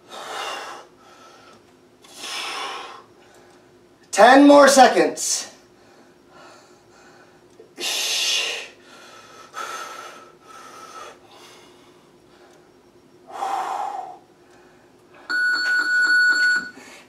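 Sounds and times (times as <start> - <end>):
man breathing hard: 0.0 - 3.7, 5.7 - 12.7, 13.3 - 15.3.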